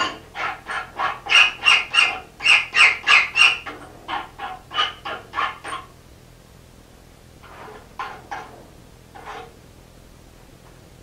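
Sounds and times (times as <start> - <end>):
hand file screeching on metal: 0.0 - 3.6, 4.2 - 5.9.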